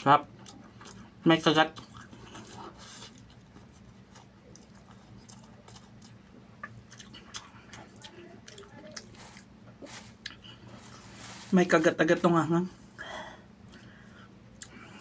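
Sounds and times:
low steady hum: 0.0 - 15.0
close-up chewing mouth clicks: 1.7 - 9.5, 14.5 - 14.9.

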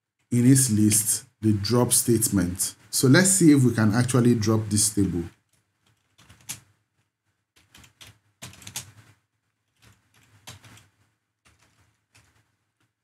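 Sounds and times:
typing on computer keyboard: 5.3 - 6.7, 7.6 - 12.9.

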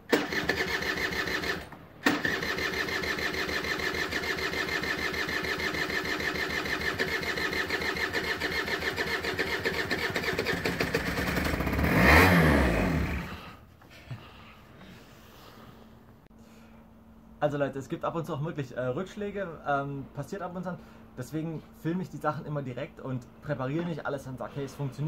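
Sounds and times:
scooter engine cranking: 0.0 - 13.6.

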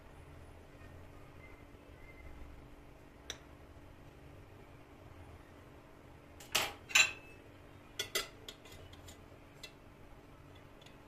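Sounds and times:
utensils clinking on porcelain plate: 6.4 - 7.3, 8.0 - 9.8.

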